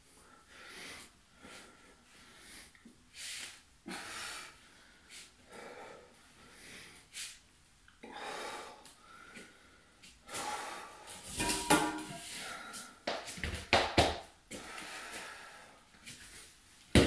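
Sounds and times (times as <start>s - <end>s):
man breathing hard: 0.1s - 7.4s, 8.0s - 11.4s, 12.2s - 13.1s, 14.5s - 16.4s
metal bars knocking on mat: 11.4s - 12.2s.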